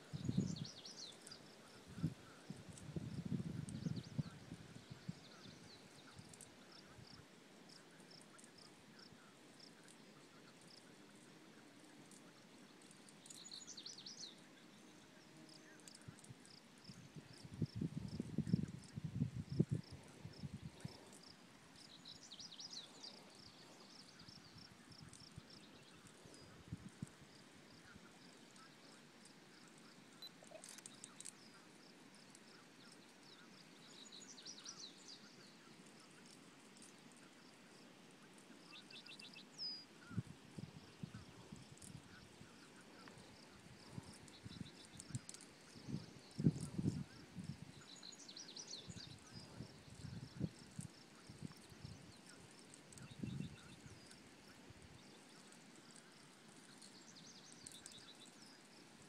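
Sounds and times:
faint high chirps: 3.7s - 31.7s
faint clicks: 5.4s - 14.5s, 15.6s - 16.6s, 19.6s - 33.4s, 40.0s - 58.7s.

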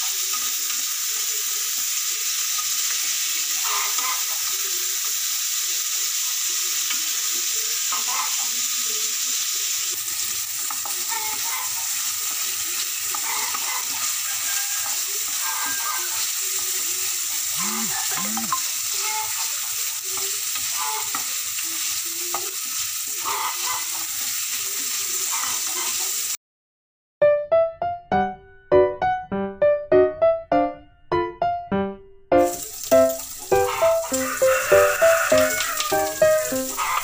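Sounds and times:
meat sizzling in a frying pan: 0.0s - 26.4s, 32.4s - 37.0s.

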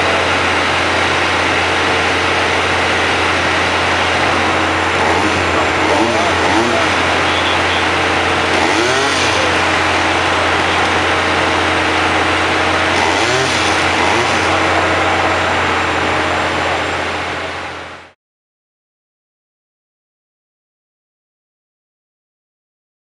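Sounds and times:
faint voices: 0.0s - 18.1s
construction machinery engines running: 0.0s - 18.2s
low hum: 0.0s - 18.2s.

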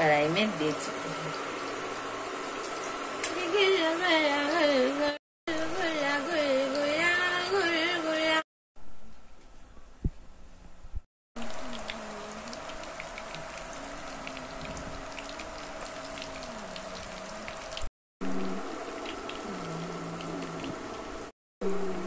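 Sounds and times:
food deep-frying in hot oil: 0.0s - 3.8s, 11.4s - 21.9s
oil crackling and popping: 11.4s - 17.9s, 18.8s - 21.1s.

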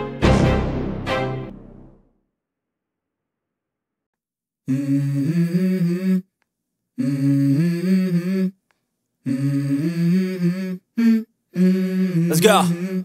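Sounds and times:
hummed vocal melody: 4.6s - 6.4s, 7.0s - 13.0s.

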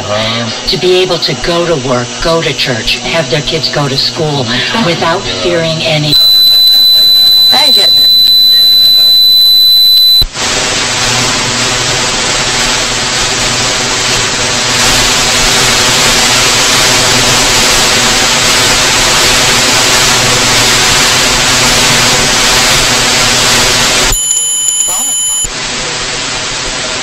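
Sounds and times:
radio static hiss: 0.0s - 27.0s
steady high whistle: 6.1s - 10.3s.

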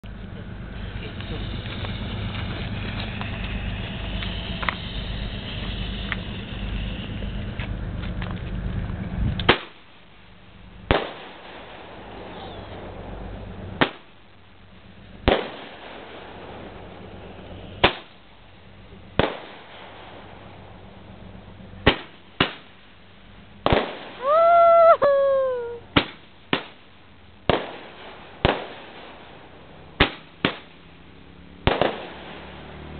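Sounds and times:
steady low noise: 0.0s - 30.0s
fireworks bangs: 0.6s - 7.8s, 10.9s - 14.2s, 15.2s - 18.2s, 19.0s - 20.8s, 21.8s - 22.8s, 23.6s - 30.8s, 31.6s - 32.9s.

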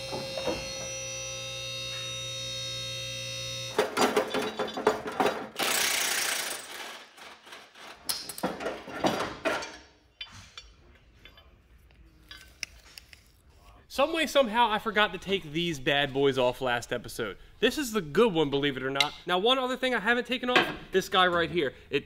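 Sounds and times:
metallic knocks of parts handled: 3.8s - 5.5s.

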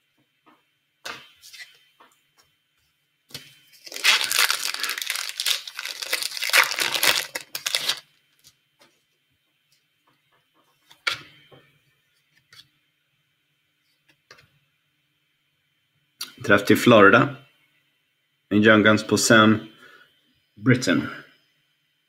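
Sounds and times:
cards rustling: 3.8s - 8.0s
foil wrapper tearing and crinkling: 3.8s - 8.0s.

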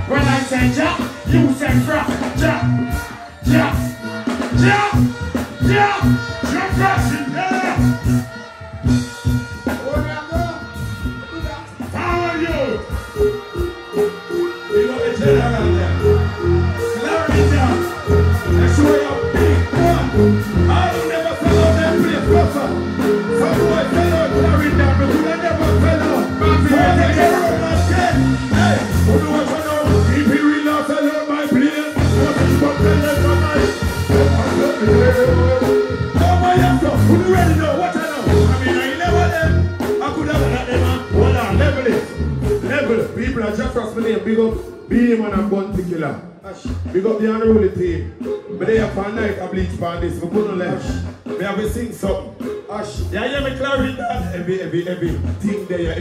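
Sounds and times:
live reggae band playing: 0.0s - 56.0s
steady bass beat: 0.0s - 56.0s
person singing: 12.8s - 43.2s.

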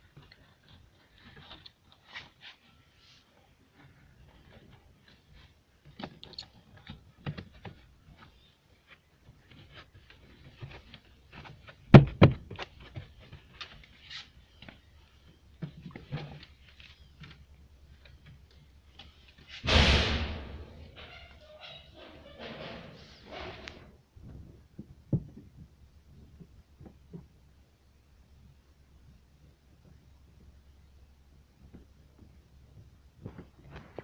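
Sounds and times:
light clicks and rustles: 3.3s - 19.6s
sharp knock: 19.6s - 21.0s.

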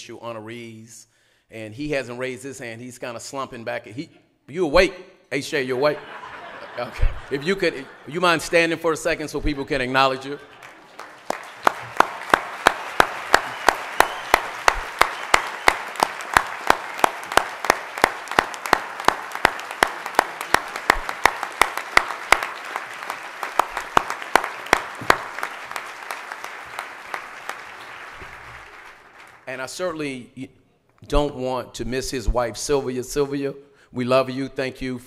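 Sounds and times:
audience applauding: 9.9s - 29.5s
loud close hand claps: 10.5s - 29.5s.

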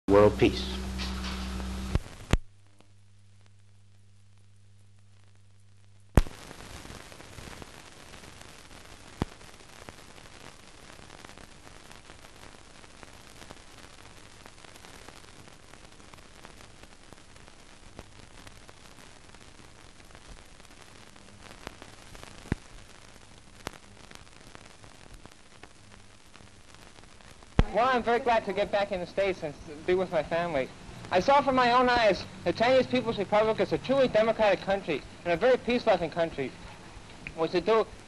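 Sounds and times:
film soundtrack hiss: 0.1s - 38.0s
clicks and pops: 0.9s - 3.6s, 6.1s - 6.5s, 21.6s - 22.7s, 36.7s - 37.4s.

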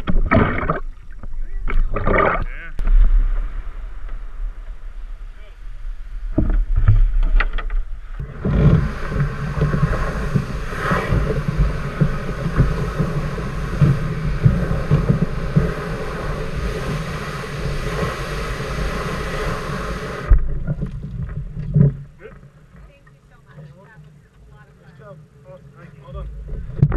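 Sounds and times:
wind noise on microphone: 0.0s - 23.6s, 26.1s - 26.9s
surf washing on shore: 1.9s - 26.9s.

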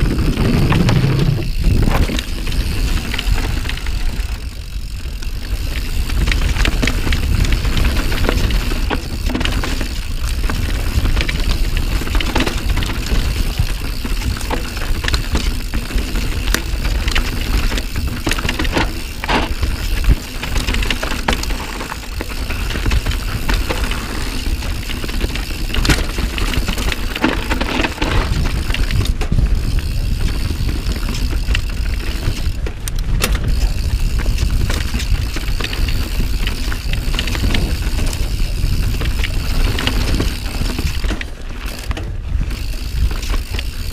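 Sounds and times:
bike rattling and clacking: 0.0s - 43.9s
tyre noise on dirt: 0.0s - 43.9s
wind rumble on microphone: 0.0s - 43.9s.

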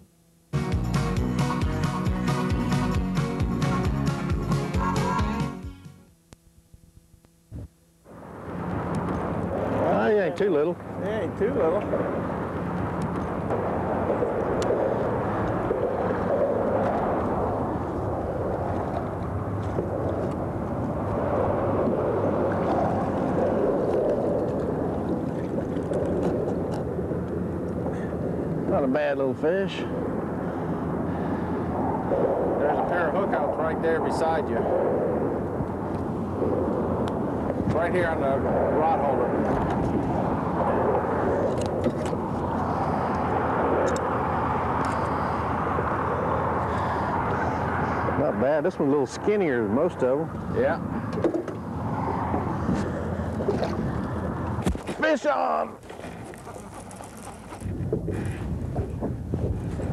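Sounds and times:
wind: 0.0s - 59.9s
choppy water: 8.0s - 59.9s
road traffic rumble: 8.1s - 55.2s.

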